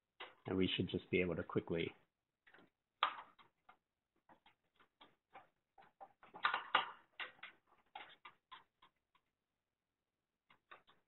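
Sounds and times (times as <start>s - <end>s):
plastic pieces clicking and tapping: 2.5s - 9.4s.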